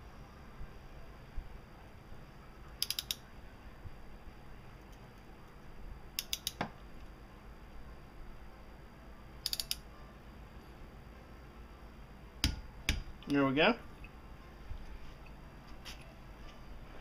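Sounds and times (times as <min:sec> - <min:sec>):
torque wrench ratchet clicking: 0:02.8 - 0:03.2, 0:06.2 - 0:06.6, 0:09.4 - 0:09.8.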